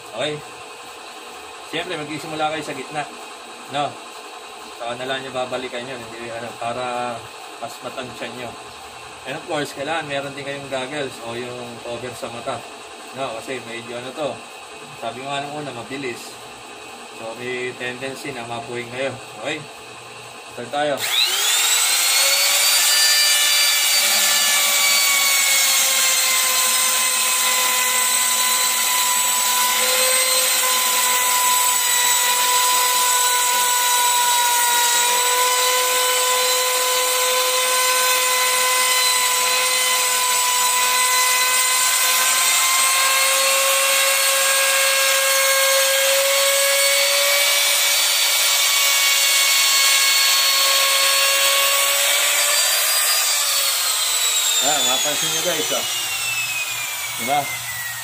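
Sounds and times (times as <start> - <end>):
router whining cutting laminate: 17.2 - 58.0.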